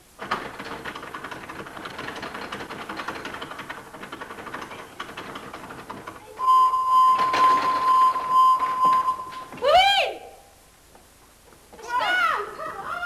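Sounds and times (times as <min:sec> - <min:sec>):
high-pitched electronic beep tone: 0:06.4 - 0:09.5.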